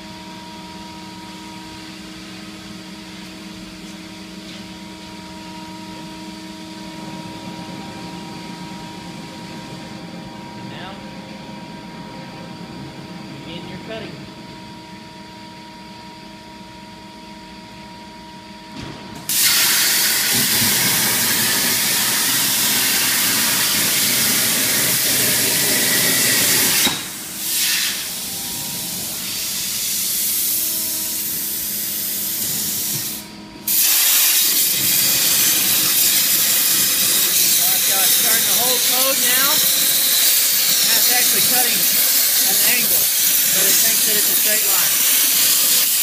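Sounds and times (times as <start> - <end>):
machine hum: 0.0 - 46.0
plasma arc hissing: 19.3 - 46.0.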